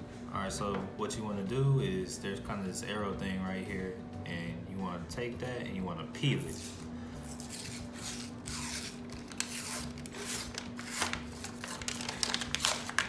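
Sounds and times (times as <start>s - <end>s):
paper label ripping: 6.6s - 13.0s.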